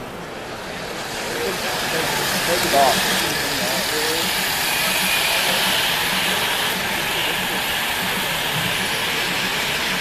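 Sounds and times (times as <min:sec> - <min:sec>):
model train hissing and rumbling: 0:00.0 - 0:10.0.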